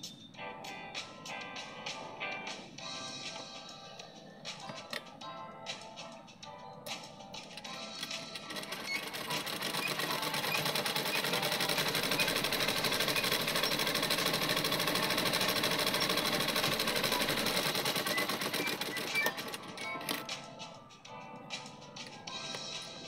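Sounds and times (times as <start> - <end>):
sewing machine stitching: 7.8 - 20.3.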